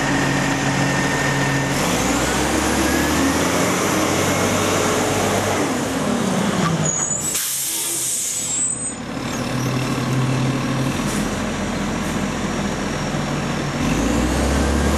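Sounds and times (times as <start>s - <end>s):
air brake hiss: 7.2s - 8.9s.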